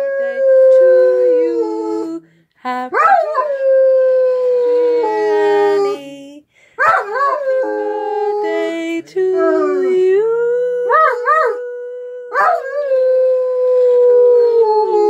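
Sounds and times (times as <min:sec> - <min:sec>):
dog howling: 0:10.7 - 0:15.0.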